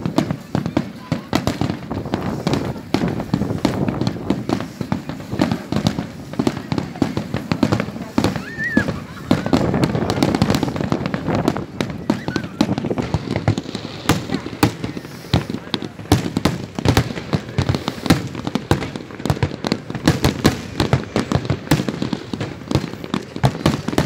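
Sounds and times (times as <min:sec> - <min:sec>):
fireworks bangs and crackles: 0:00.0 - 0:24.0.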